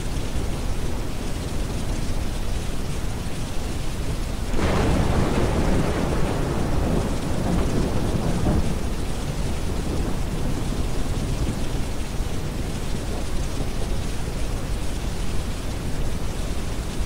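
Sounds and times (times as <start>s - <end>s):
steady rain: 0.0s - 17.0s
rolling thunder: 4.5s - 13.7s.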